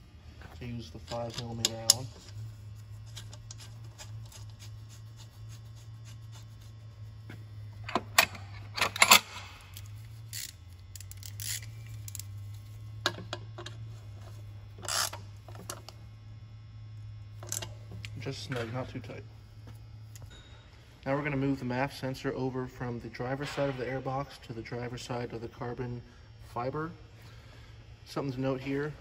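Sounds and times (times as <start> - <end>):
steady low hum: 0.0 - 29.0
hand tool and metal parts clicking: 0.9 - 2.4, 7.9 - 12.3.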